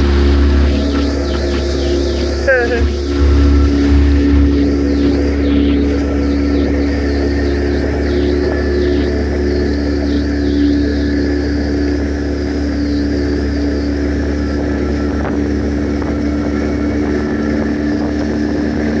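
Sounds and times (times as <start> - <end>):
outboard motors running: 0.0 - 19.0
water rushing along hulls: 0.0 - 19.0.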